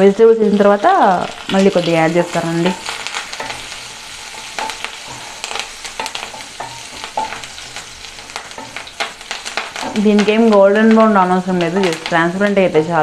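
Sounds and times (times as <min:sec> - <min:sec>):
onions sizzling in hot fat: 0:00.0 - 0:13.0
wooden spatula scraping a pan: 0:01.9 - 0:10.5.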